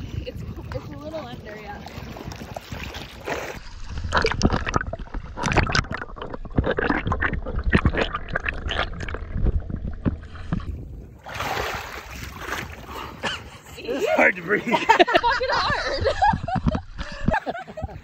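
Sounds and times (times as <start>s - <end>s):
bubbles gurgling underwater: 4.0s - 10.6s
knocks and clicks underwater: 4.0s - 10.8s, 16.2s - 17.4s
splashing at the surface: 11.2s - 12.9s.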